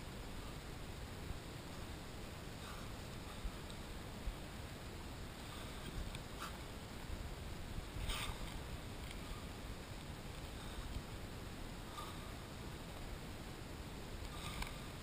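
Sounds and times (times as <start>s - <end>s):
faint steady hiss: 0.0s - 15.0s
soft rustles: 7.8s - 13.2s.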